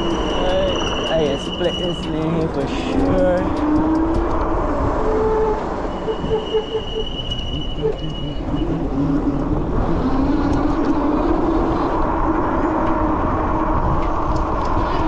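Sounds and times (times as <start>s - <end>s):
heavy low rumble: 0.0s - 15.0s
road and vehicle noise: 0.0s - 15.0s
engine tone rising and falling: 2.2s - 14.8s.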